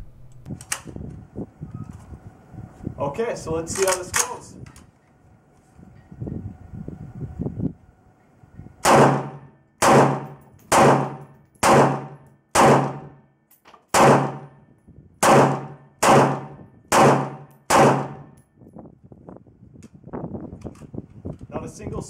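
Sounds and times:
rifle shots echoing: 8.8 - 13.2, 13.9 - 14.6, 15.2 - 18.3.

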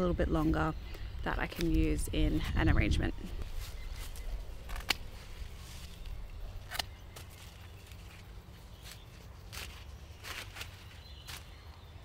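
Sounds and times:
stalks and leaves rustling: 0.0 - 12.0
secateurs snipping stems: 1.5 - 1.9, 3.4 - 11.5.

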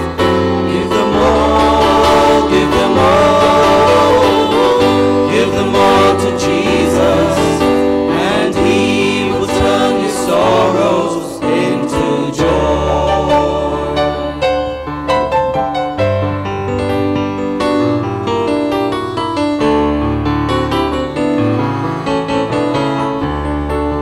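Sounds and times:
choir singing a hymn: 0.0 - 15.2
keyboard playing: 0.0 - 24.0.

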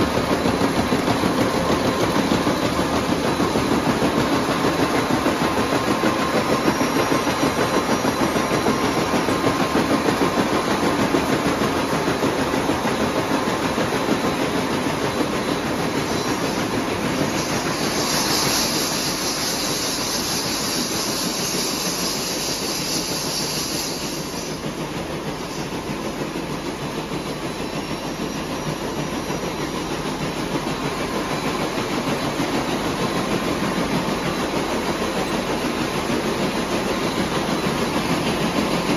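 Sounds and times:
hiss: 0.0 - 38.9.

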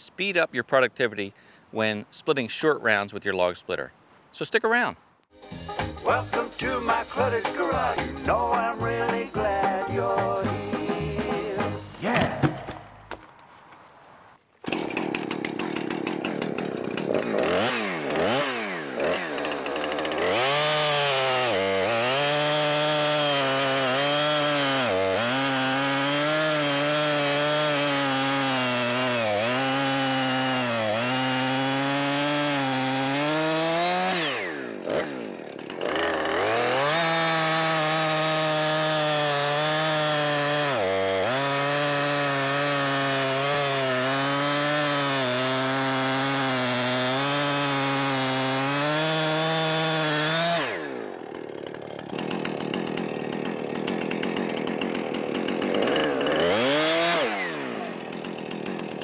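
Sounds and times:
chainsaw cutting log: 14.6 - 59.0.

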